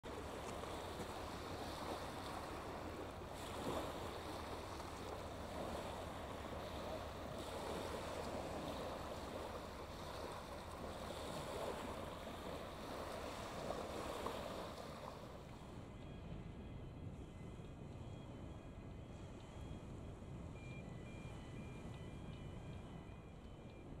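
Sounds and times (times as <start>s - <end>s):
small waves on shingle beach: 0.0s - 15.5s.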